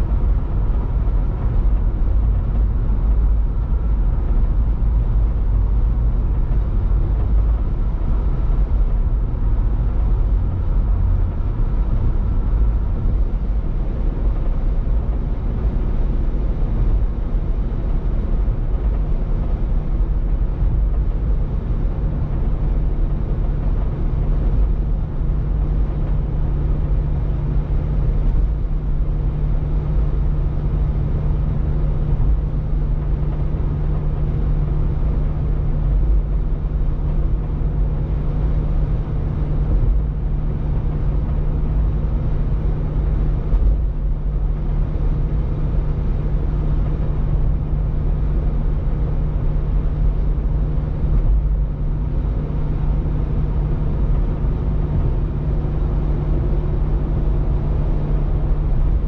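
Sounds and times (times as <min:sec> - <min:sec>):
low engine hum: 0:00.0 - 0:59.0.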